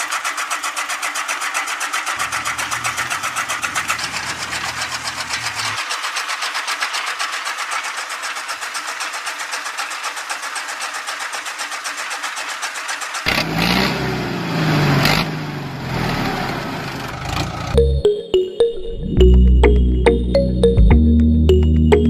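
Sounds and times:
tractor engine: 0:00.0 - 0:18.1.

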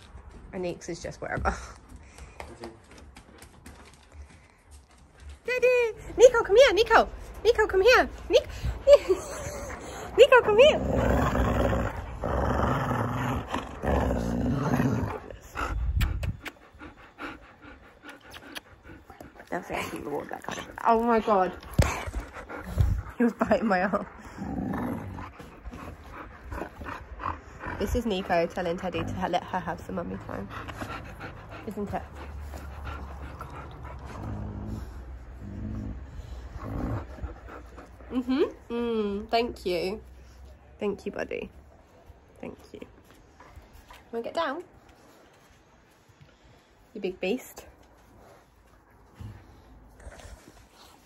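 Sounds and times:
low rumble: 0:06.0 - 0:17.8
dog growling low: 0:09.4 - 0:17.8, 0:24.0 - 0:38.3.

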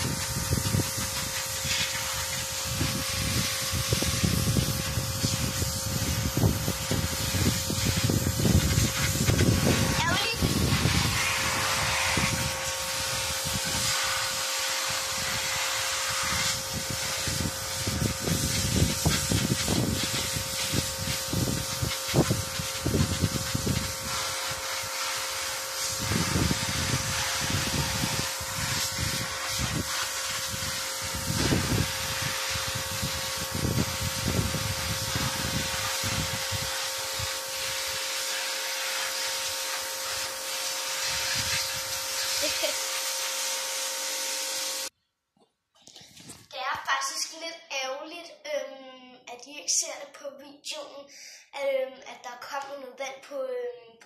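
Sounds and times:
pressure washer jet hissing: 0:00.0 - 0:44.9.

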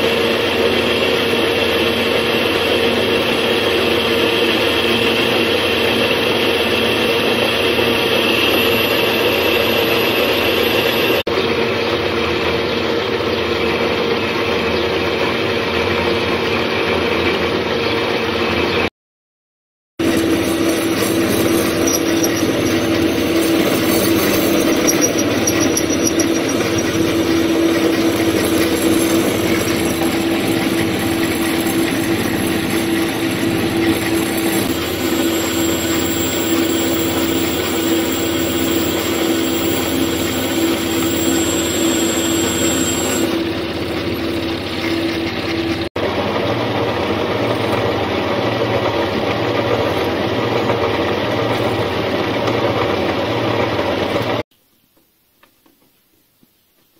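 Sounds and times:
turning tool cutting metal: 0:00.0 - 0:11.2, 0:20.0 - 0:45.9
metal lathe running with whine: 0:00.0 - 0:11.5, 0:20.0 - 0:54.4.

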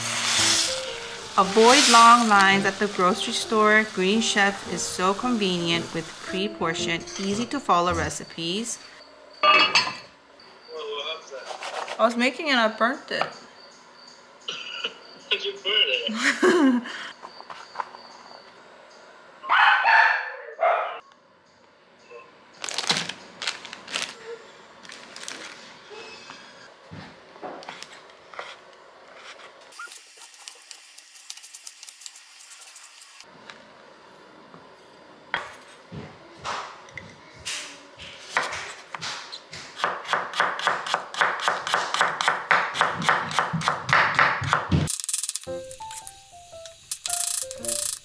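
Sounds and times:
knife chopping on wooden board: 0:38.3 - 0:44.9.

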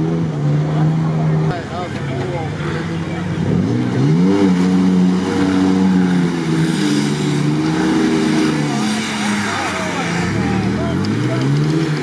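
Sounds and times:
engine revving: 0:02.5 - 0:12.0.

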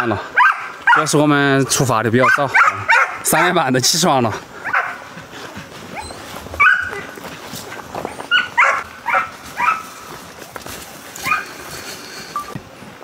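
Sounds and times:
dog yipping: 0:00.4 - 0:01.1, 0:02.2 - 0:03.2, 0:04.6 - 0:05.0, 0:05.9 - 0:07.2, 0:08.1 - 0:09.9, 0:11.2 - 0:11.5.

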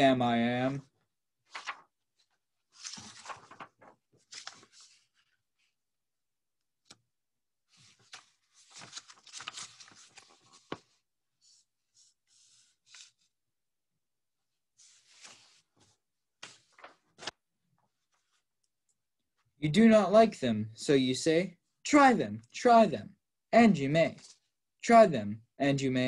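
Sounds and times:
paper pages turning: 0:01.4 - 0:05.7, 0:07.7 - 0:11.0, 0:12.3 - 0:13.3, 0:14.8 - 0:17.4.

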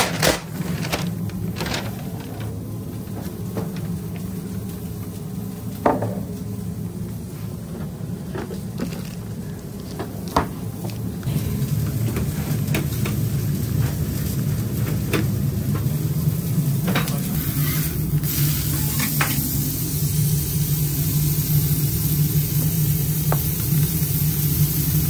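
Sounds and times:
steel drawers and utensils clattering: 0:00.0 - 0:02.6
kitchen equipment hum: 0:00.0 - 0:25.0.

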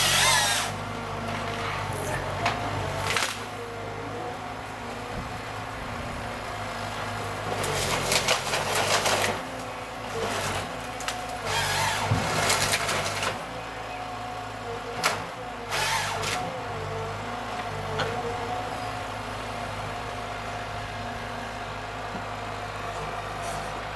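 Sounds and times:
hydraulic whine: 0:00.0 - 0:00.8
harvester head cutting tree: 0:00.0 - 0:03.5, 0:07.6 - 0:13.4, 0:15.0 - 0:16.5
diesel engine running: 0:00.0 - 0:23.9.

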